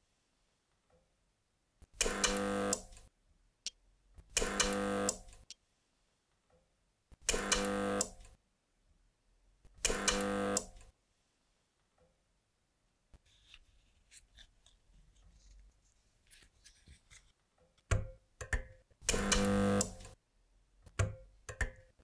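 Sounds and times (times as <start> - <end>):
spot welder buzzing: 1.9 - 3.1, 4.3 - 5.4, 7.2 - 8.4, 9.8 - 10.9, 19.0 - 20.2.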